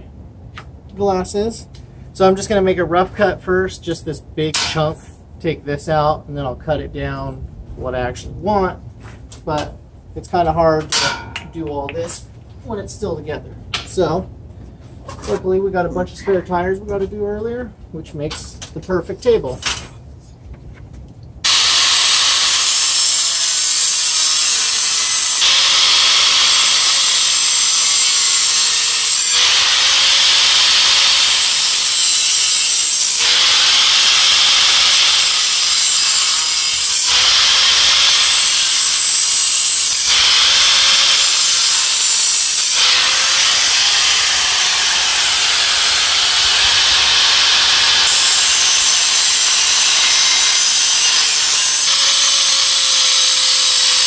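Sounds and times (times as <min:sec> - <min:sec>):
angle grinder cutting metal: 0:21.4 - 0:54.0.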